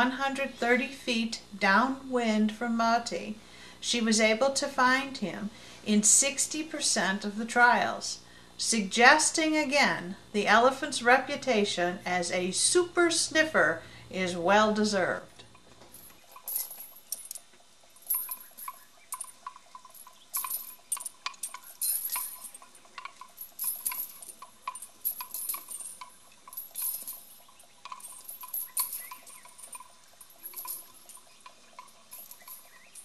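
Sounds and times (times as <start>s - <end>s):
metal chain clinking: 15.9s - 33.0s.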